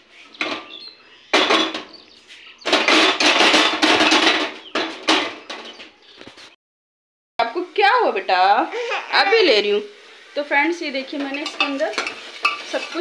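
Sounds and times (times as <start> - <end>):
ingredients clattering into pressure cooker: 0.4 - 2.0, 2.6 - 5.9, 11.1 - 13.0.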